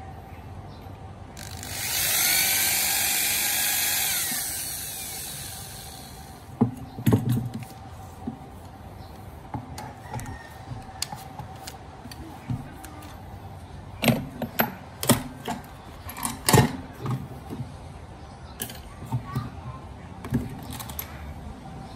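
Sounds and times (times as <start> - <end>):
electric drill whining: 1.4 - 6.5.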